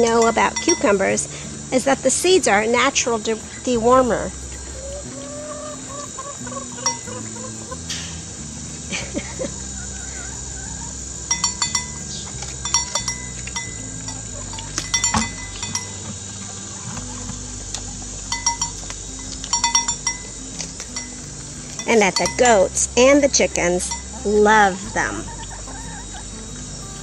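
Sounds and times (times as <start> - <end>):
small metal bell clinking: 0.0 - 1.0, 6.8 - 7.2, 11.3 - 16.0, 18.3 - 18.8, 19.5 - 22.7, 23.8 - 24.2.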